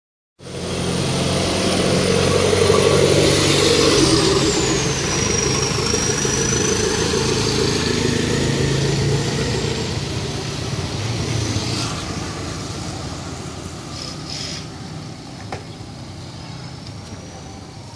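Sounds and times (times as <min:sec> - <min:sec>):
vehicle engine running: 0:00.4 - 0:11.2
street traffic noise: 0:00.4 - 0:17.9
high-pitched whine: 0:00.8 - 0:12.8.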